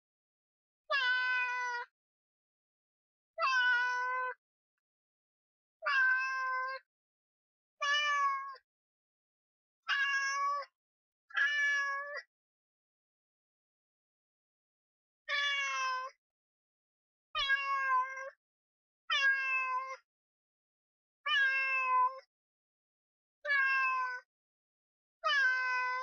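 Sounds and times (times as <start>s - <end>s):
cat meowing: 0.9s - 1.9s, 3.4s - 4.4s, 5.8s - 6.8s, 7.8s - 8.6s, 9.9s - 10.7s, 11.4s - 12.3s, 15.3s - 16.2s, 17.4s - 18.3s, 19.1s - 20.0s, 21.3s - 22.2s, 23.4s - 24.2s, 25.2s - 26.0s.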